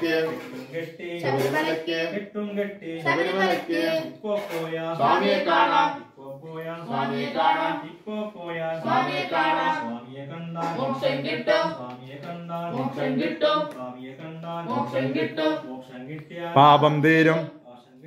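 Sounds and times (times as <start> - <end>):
voices singing a devotional chant: 0.0 - 18.0.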